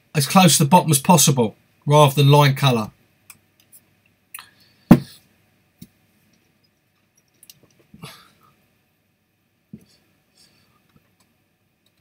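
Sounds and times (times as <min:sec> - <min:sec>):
loud knock: 0:04.9 - 0:05.1.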